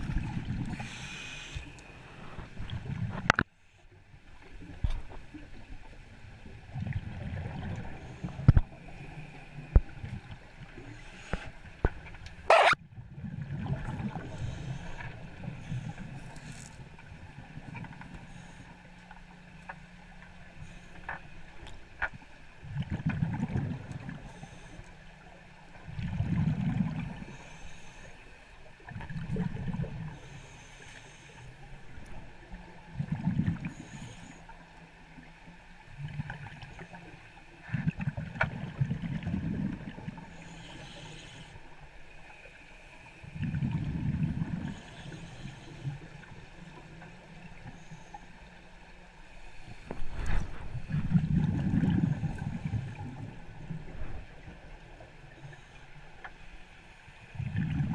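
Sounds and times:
diver's bubbles rumbling: 37.7 - 40.2, 43.3 - 44.8, 49.9 - 54.3, 57.4 - 57.9.

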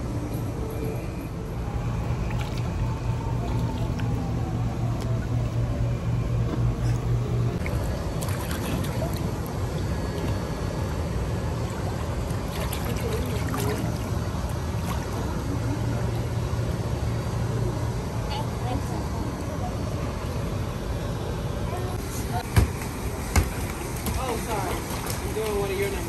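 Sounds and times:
steady low rumble: 0.0 - 26.0
pool water splashing: 1.5 - 17.5, 21.7 - 26.0.

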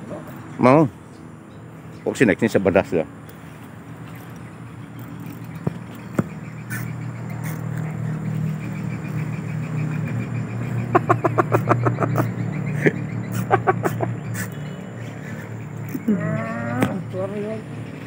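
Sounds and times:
sharp animal calls: 6.0 - 17.2.

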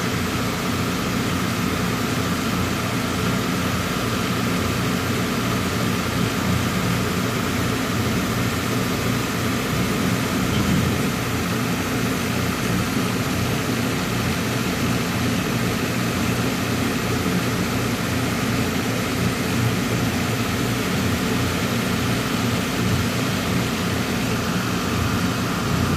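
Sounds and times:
truck engine idling: 6.8 - 12.8.

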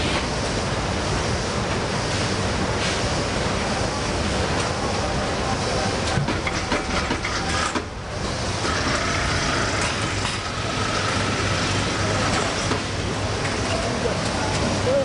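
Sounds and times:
packing machine running: 3.5 - 15.0.

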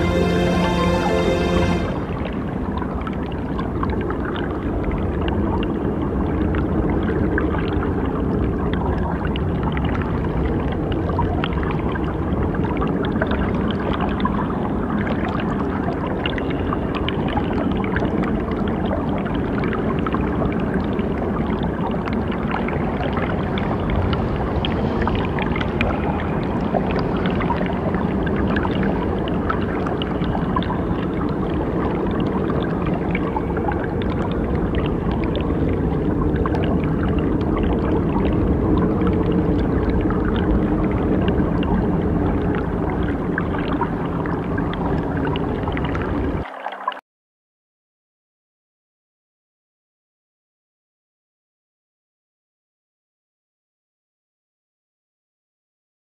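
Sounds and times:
low hum: 0.0 - 3.3, 22.5 - 29.2
water-like noisy texture: 0.0 - 47.0.

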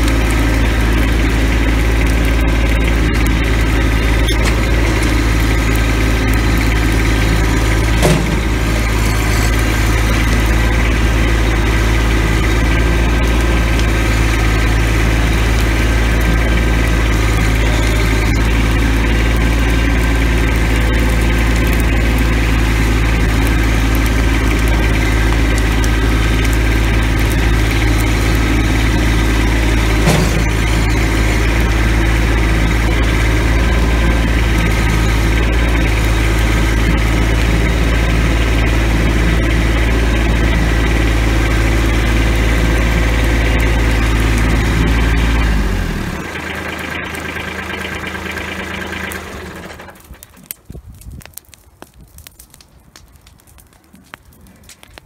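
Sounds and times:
tractor engine running: 0.0 - 55.0
short clunk: 30.0 - 30.6.

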